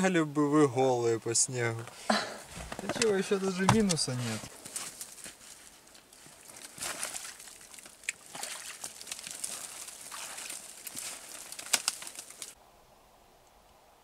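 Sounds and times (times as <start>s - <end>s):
twigs and branches rustling: 1.8s - 12.6s
sharp branch cracks: 4.6s - 12.6s.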